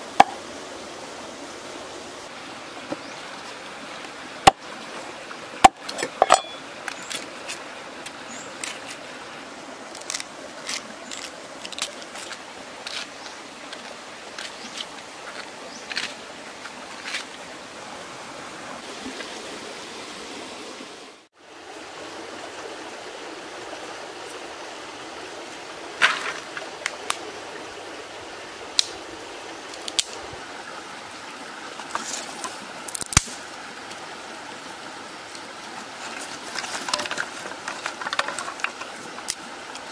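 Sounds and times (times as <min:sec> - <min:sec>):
stream rushing: 0:00.0 - 0:39.9
dry twigs snapping and clicking: 0:09.9 - 0:13.1, 0:29.7 - 0:30.2, 0:32.8 - 0:33.4, 0:36.6 - 0:39.9.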